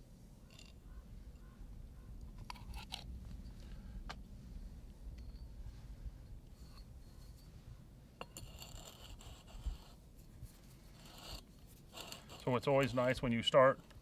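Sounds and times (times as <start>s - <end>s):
pipe threads scraping: 6.4s - 14.0s.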